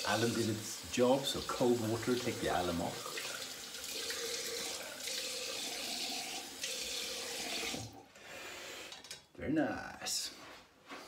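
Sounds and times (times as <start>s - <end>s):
water running from sink tap: 0.0s - 8.0s.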